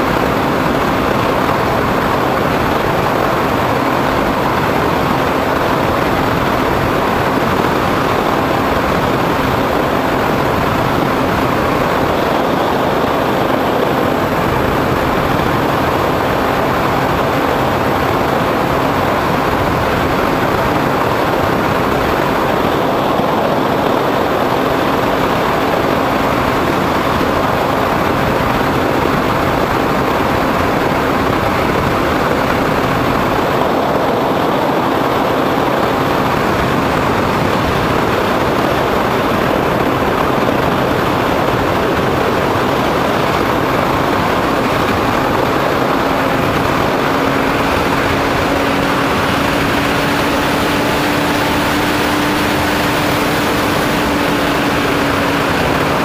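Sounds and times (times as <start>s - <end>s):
plane motor and propeller hum: 0.0s - 56.0s
wind rush on microphone: 0.0s - 56.0s.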